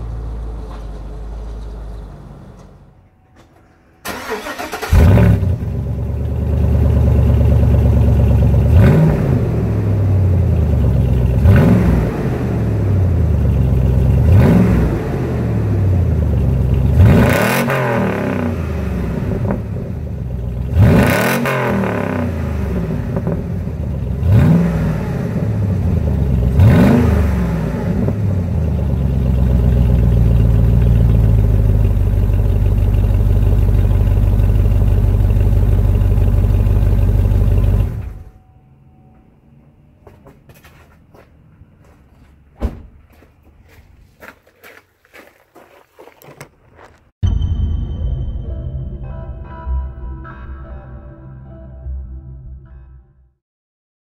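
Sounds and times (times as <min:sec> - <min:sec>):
car engine idling: 0:00.0 - 0:38.4
car engine revving: 0:04.0 - 0:38.3.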